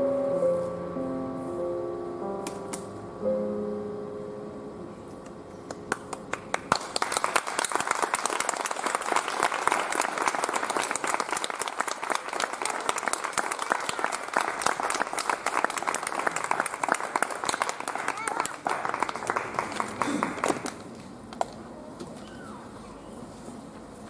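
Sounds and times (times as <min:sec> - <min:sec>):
audience applause: 0:05.9 - 0:20.8.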